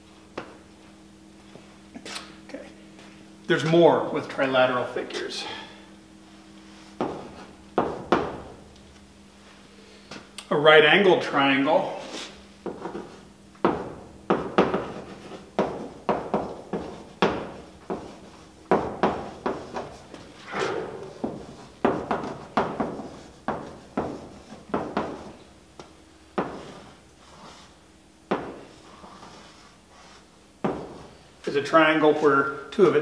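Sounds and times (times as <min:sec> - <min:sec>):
chalk tapping on blackboard: 0:14.3 - 0:20.0, 0:21.1 - 0:27.7
chalk scraping on blackboard: 0:26.6 - 0:27.8, 0:28.8 - 0:30.3.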